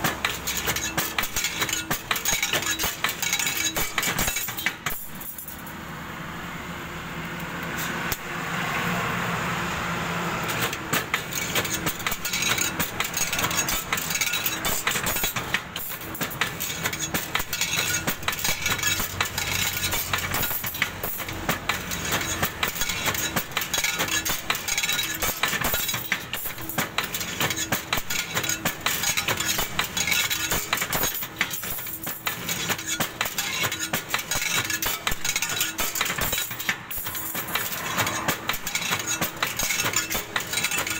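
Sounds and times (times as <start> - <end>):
metallic clinking and clattering: 0.0 - 5.7, 10.6 - 40.9.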